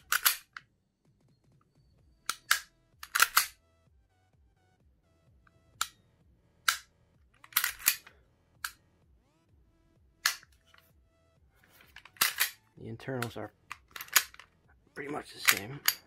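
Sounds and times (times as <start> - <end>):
toy gun mechanism clicking: 0.0 - 0.6, 2.3 - 3.6, 7.4 - 8.8, 10.2 - 10.4, 11.9 - 12.6, 13.2 - 14.5, 15.4 - 16.0.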